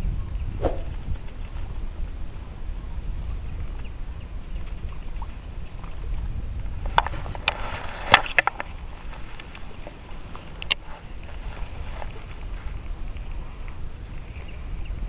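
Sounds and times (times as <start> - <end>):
wind rumble on microphone: 0.0 - 15.0.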